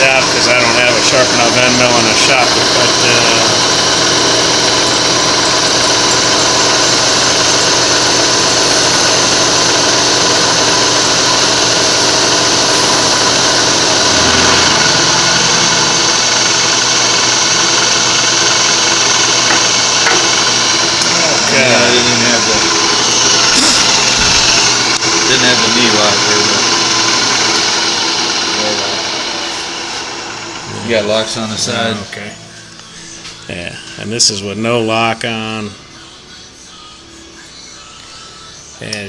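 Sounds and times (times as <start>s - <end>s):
milling cutter cutting steel: 0.2s - 31.3s.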